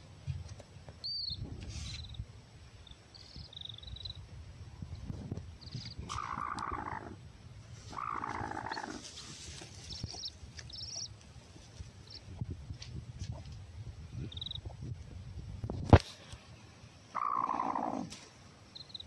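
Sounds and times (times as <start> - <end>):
hen growling: 6.1 - 7.2, 7.9 - 9.1, 17.1 - 18.2
chicks peeping: 9.8 - 11.2.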